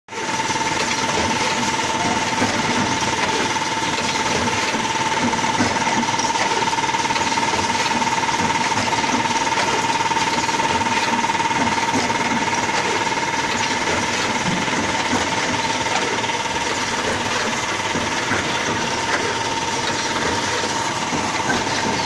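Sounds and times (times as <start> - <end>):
binding machine clattering: 0.2 - 22.0
machine whine: 0.2 - 22.0.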